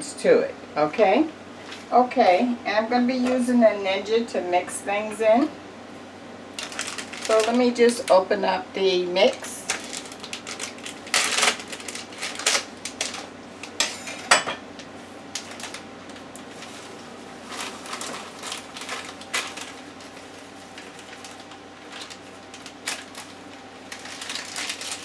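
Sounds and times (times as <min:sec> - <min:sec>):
plastic bag crinkling: 0:06.6 - 0:08.2, 0:09.2 - 0:13.8, 0:15.3 - 0:25.0
knife cutting plastic bag: 0:09.3 - 0:13.8, 0:17.5 - 0:25.0.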